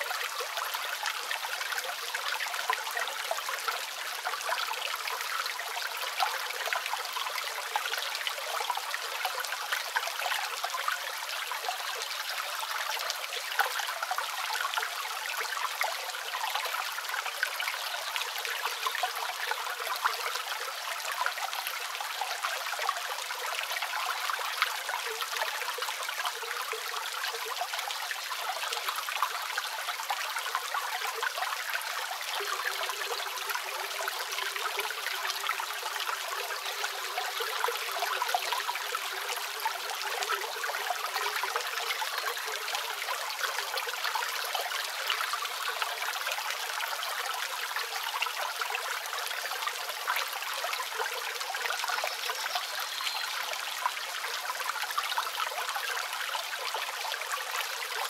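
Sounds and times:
small waterfall splashing: 0:00.0 - 0:58.0.

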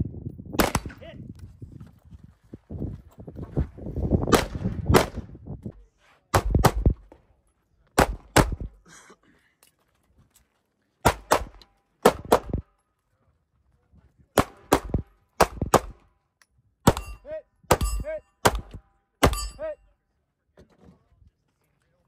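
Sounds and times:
ringing gunshots: 0:16.9 - 0:19.8.

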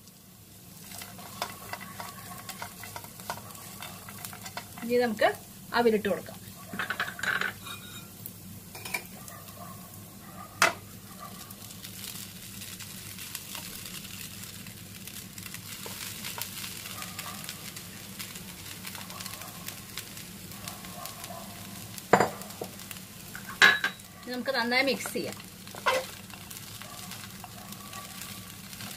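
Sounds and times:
oil sizzling in a frying pan: 0:00.0 - 0:28.9.

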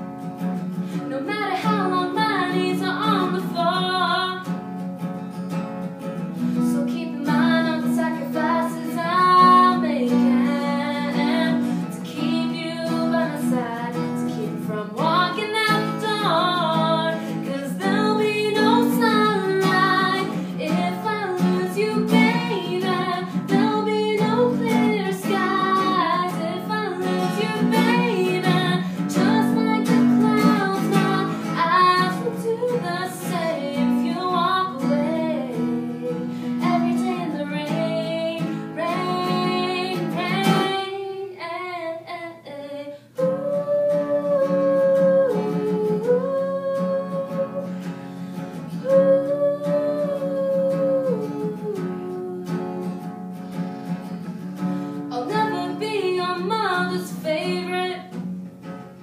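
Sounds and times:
acoustic guitar: 0:00.0 - 0:59.0
woman singing: 0:00.5 - 0:04.7, 0:06.4 - 0:58.3.

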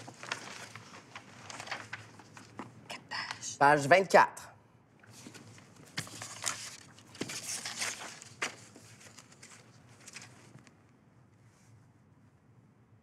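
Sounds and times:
sheet music pages rustling: 0:00.0 - 0:02.8, 0:05.0 - 0:10.8.

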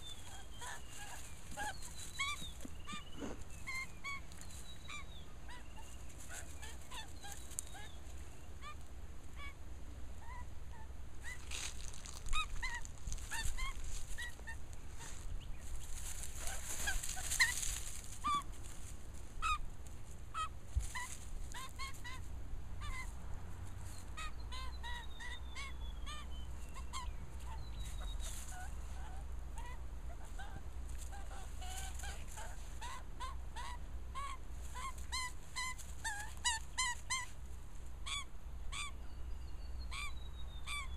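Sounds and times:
scuffling in dry leaves: 0:00.0 - 0:08.9, 0:11.2 - 0:22.4, 0:26.5 - 0:33.0, 0:34.4 - 0:37.9
magpie calling: 0:00.0 - 0:09.6, 0:15.8 - 0:18.6, 0:19.4 - 0:19.6, 0:20.4 - 0:23.2, 0:23.9 - 0:37.4, 0:38.0 - 0:39.0, 0:39.8 - 0:40.9.

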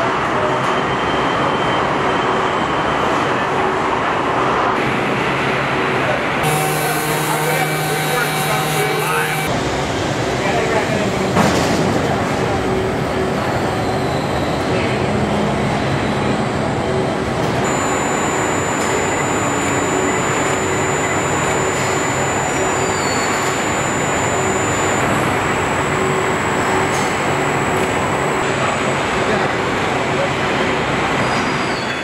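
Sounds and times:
factory machinery rumble and hiss: 0:00.0 - 0:31.6
thin high whine: 0:06.4 - 0:09.5, 0:17.6 - 0:28.5
faint hum: 0:17.6 - 0:28.5.

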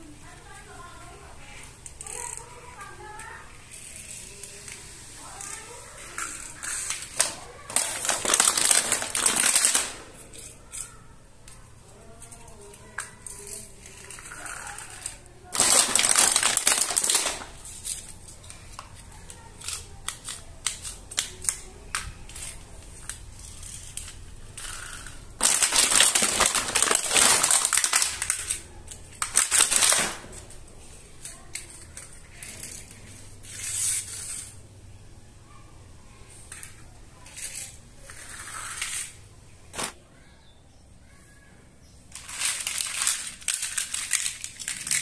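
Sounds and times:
loud rustling noise: 0:00.6 - 0:34.7, 0:36.3 - 0:40.0, 0:42.0 - 0:45.0
plastic toy pieces clicking: 0:01.8 - 0:11.6, 0:12.2 - 0:30.2, 0:31.2 - 0:34.5, 0:42.1 - 0:45.0.

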